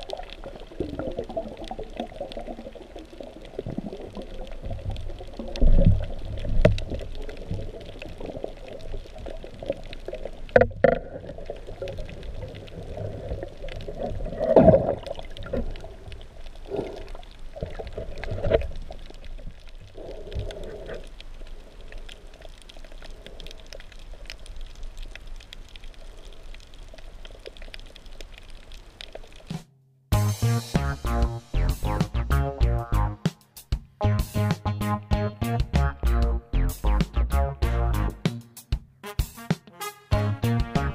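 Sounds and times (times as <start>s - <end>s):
muffled underwater wash: 0.0s - 29.6s.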